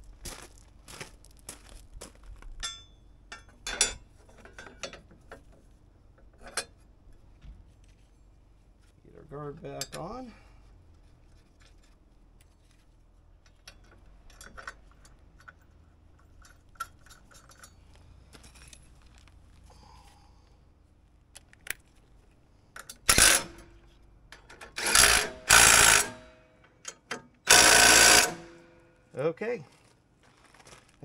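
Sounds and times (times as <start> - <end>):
small tools and bolts clinking: 2.6 - 5.5, 9.6 - 10.2, 13.4 - 19.4
cordless impact driver running: 24.8 - 26.2, 27.5 - 28.6.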